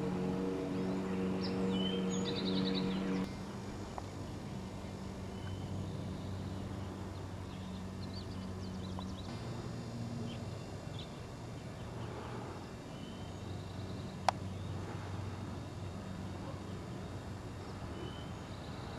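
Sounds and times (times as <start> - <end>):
low steady hum: 0.0 - 18.9
faint bird chirps: 10.2 - 15.4, 16.2 - 18.9.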